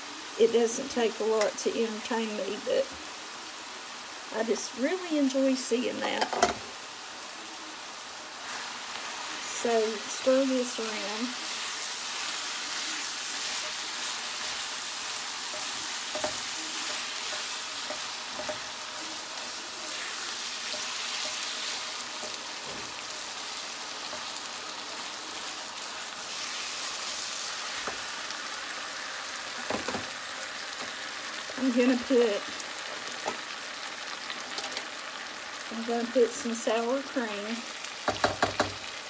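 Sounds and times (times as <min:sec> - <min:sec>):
meat sizzling in a frying pan: 0:00.0 - 0:39.0
spatula scraping a pan: 0:10.7 - 0:23.2.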